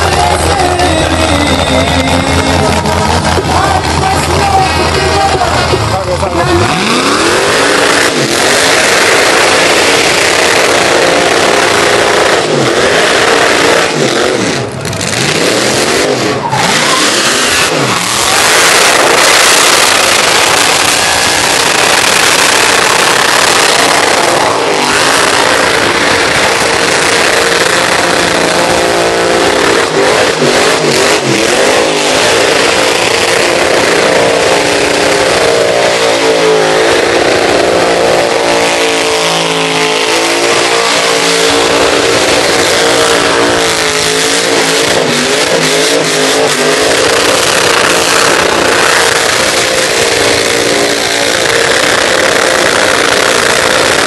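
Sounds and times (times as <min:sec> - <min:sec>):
truck engine revving: 0:00.0 - 0:54.0
tyres spinning on pavement: 0:16.2 - 0:54.0.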